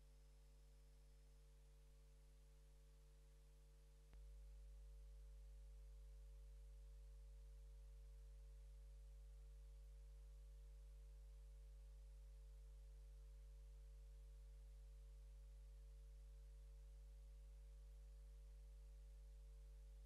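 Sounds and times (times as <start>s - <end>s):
faint click: 4.0s - 4.4s.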